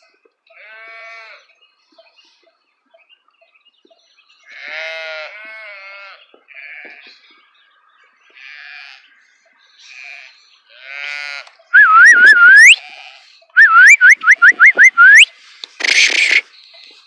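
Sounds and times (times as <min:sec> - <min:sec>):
sheep bleating: 0:00.5 - 0:01.4, 0:04.5 - 0:07.1, 0:08.4 - 0:09.1, 0:09.8 - 0:11.6
person whistling upward slides: 0:11.8 - 0:12.8, 0:13.6 - 0:15.3.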